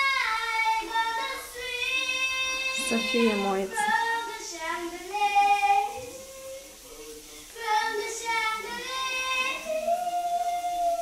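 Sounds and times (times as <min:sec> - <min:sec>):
muffled girl singing: 0:00.0 - 0:11.0.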